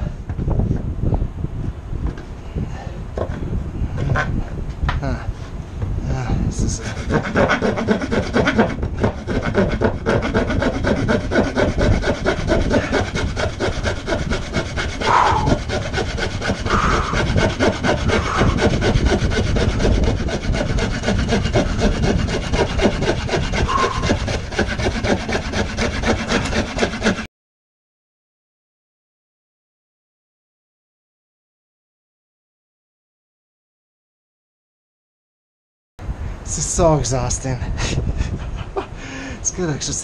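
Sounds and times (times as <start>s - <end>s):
hand saw cutting wood: 6.6s - 27.3s.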